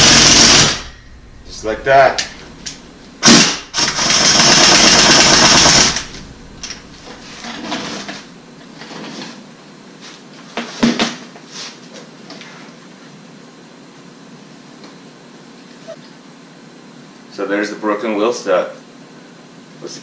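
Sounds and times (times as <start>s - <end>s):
pneumatic impact wrench hammering: 0.0s - 1.0s, 3.2s - 8.1s.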